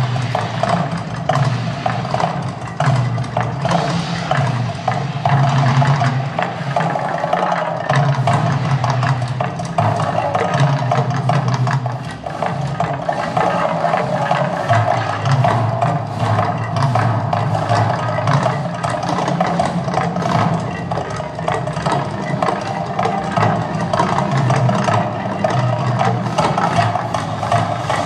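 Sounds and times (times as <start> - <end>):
loud continuous rumble: 0.0 - 28.0
music with percussion: 0.0 - 28.0.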